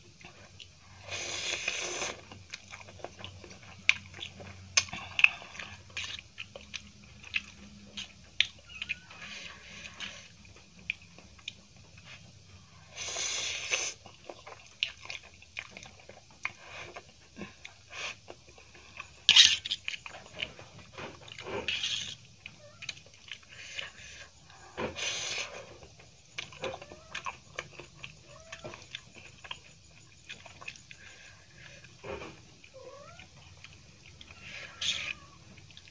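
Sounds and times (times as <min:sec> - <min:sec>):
chewing: 0:00.0 - 0:12.9, 0:13.6 - 0:35.9
slurping noodles: 0:00.9 - 0:02.2.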